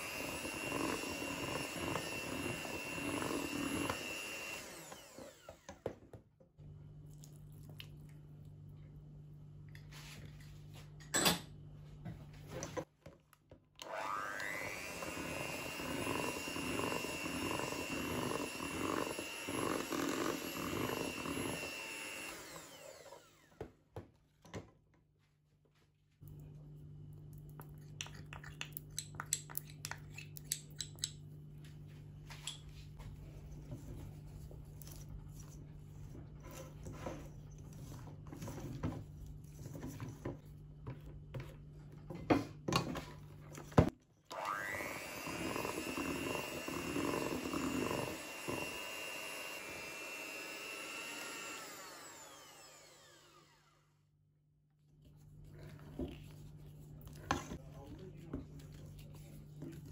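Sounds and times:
electric hand mixer motor hum: 0.0 - 5.9, 13.8 - 23.6, 44.3 - 53.9.

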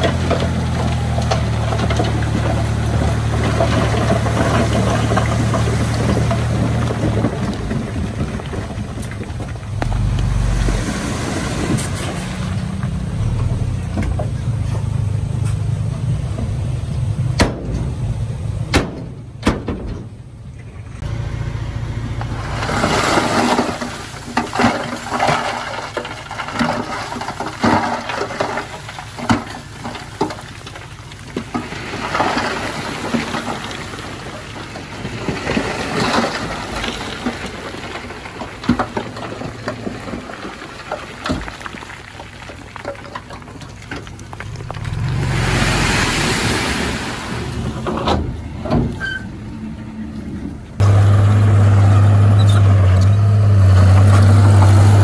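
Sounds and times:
bulldozer diesel engine running: 0.0 - 55.0
stone crunching and scraping: 35.0 - 46.2.

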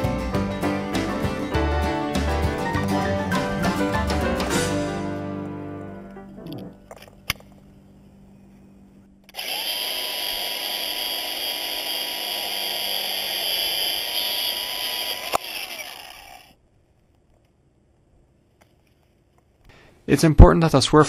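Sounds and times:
angle grinder cutting steel cable: 9.3 - 16.6.

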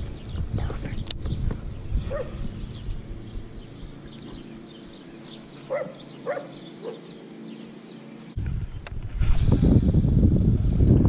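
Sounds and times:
dog barking: 2.1 - 2.4, 5.7 - 7.1.

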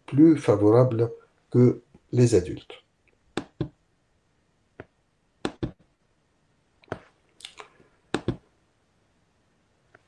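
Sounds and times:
computer mouse clicking: 4.8 - 5.8, 8.1 - 8.4.

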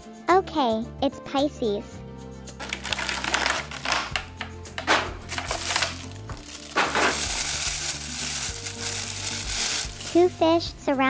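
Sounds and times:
plastic bag crinkling: 2.6 - 4.4, 5.2 - 10.2
plastic tray handling: 2.6 - 7.6.

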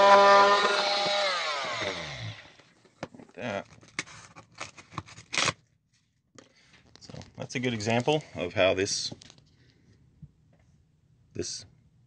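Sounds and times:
power tool motor whine: 0.0 - 2.6.

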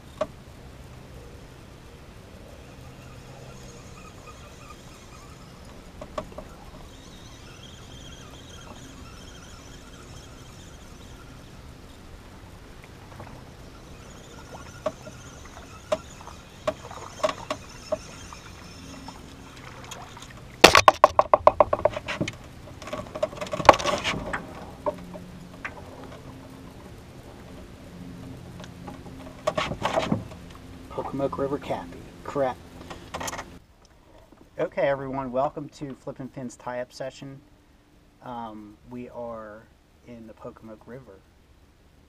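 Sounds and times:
fish splashing: 1.6 - 27.5.

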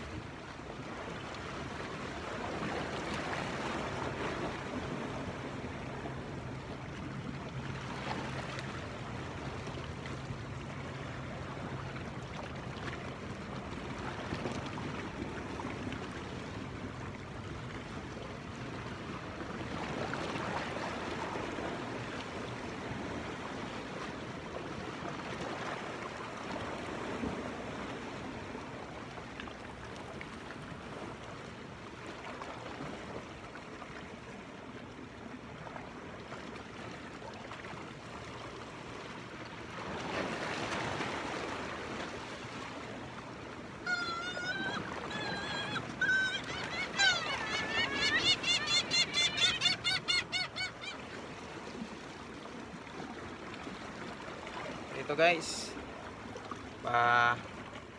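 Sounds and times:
sea water splashing against rocks: 39.6 - 43.8.

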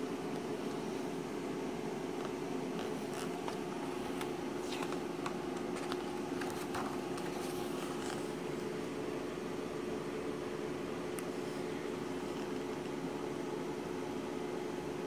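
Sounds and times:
paper pages rustling: 2.8 - 8.5.

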